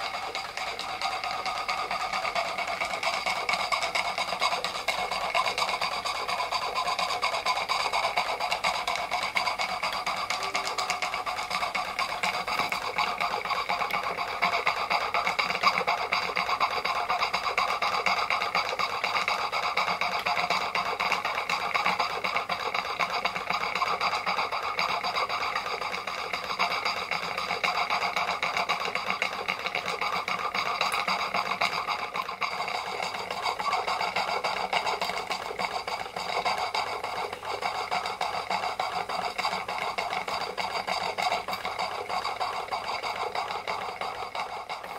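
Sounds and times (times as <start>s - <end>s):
steam engine mechanical clatter: 0.0s - 44.9s
steady ringing tones: 10.1s - 12.8s.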